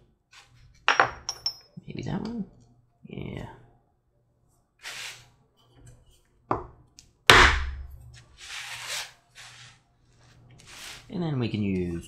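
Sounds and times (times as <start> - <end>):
mallet striking hand punch: 7.3 - 7.9.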